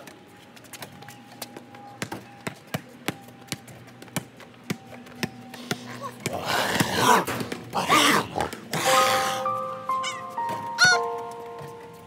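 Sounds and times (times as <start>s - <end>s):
basketball bouncing on concrete: 2.0s - 7.5s.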